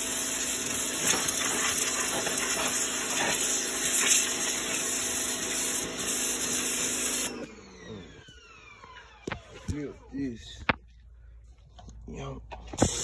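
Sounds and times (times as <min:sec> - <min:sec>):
pressure washer water hiss: 0:00.0 - 0:07.4, 0:12.8 - 0:13.0
pump humming: 0:00.0 - 0:09.2.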